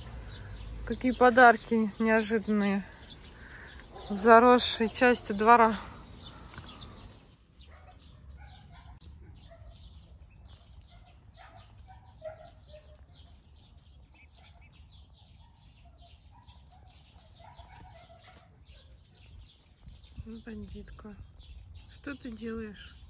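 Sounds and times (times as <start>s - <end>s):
faint bird calls: 2.8s - 9.8s.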